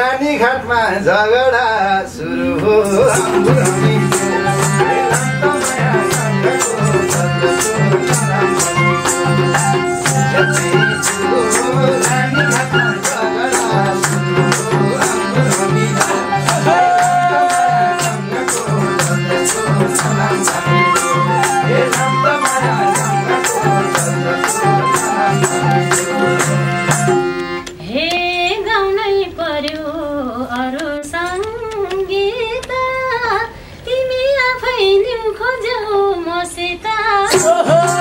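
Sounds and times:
harmonium chords: 2.5 - 29.3, 37.2 - 38.0
hand drum beat: 3.0 - 27.6, 37.3 - 38.0.

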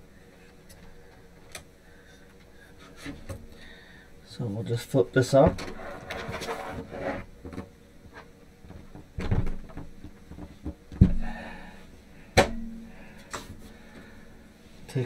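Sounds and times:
rustling handling of panel: 5.4 - 10.8.

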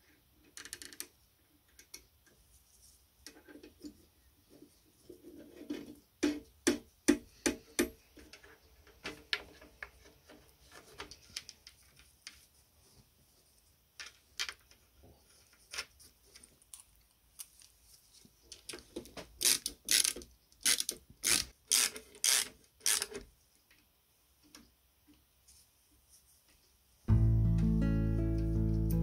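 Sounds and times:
ratchet wrench ratcheting: 19.4 - 23.1.

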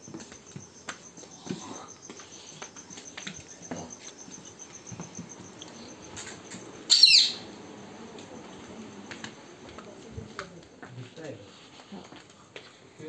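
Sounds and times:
cricket chirping: 0.0 - 11.4
high falling squawk: 6.9 - 7.5.

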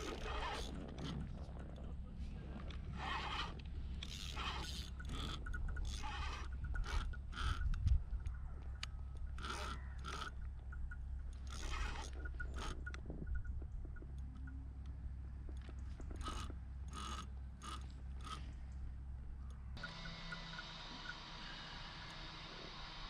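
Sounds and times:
fishing reel gears grinding: 0.0 - 1.2, 2.9 - 7.9, 9.2 - 13.0, 16.1 - 18.5
short scraping bursts: 2.9 - 7.7.

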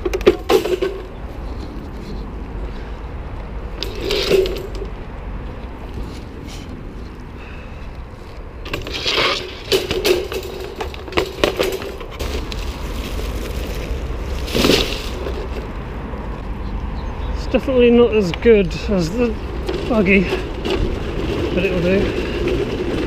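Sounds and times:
shopping trolley rattling on wheels: 3.8 - 4.9, 8.7 - 15.6, 19.2 - 23.0
plastic scrap clattering in basket: 8.7 - 15.5.

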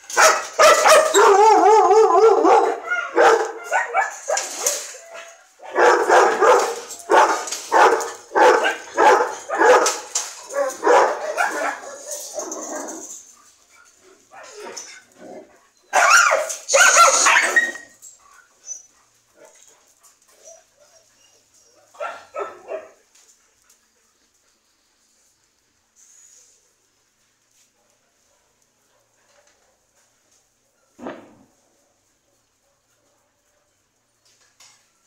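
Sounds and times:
dogs barking: 0.1 - 13.2, 15.9 - 17.9, 21.9 - 23.0.

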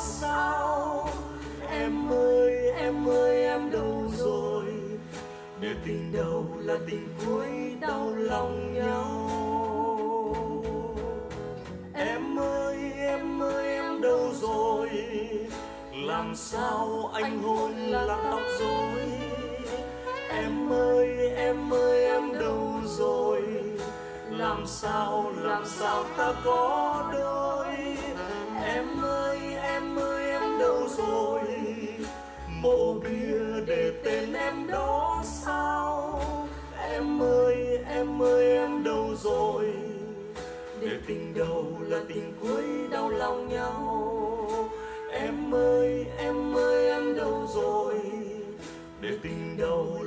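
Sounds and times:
ballad music with bass and chords: 0.0 - 50.0.

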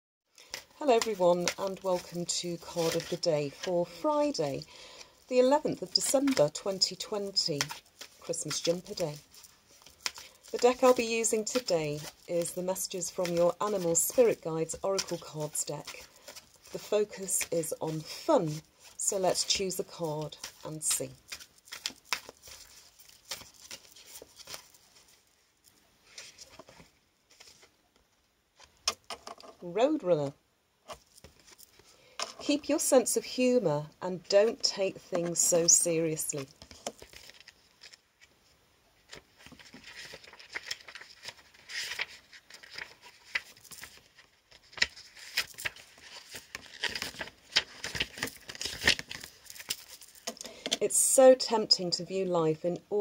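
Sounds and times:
cards being shuffled: 0.4 - 25.2, 30.9 - 32.5, 35.2 - 38.3, 39.1 - 50.8.

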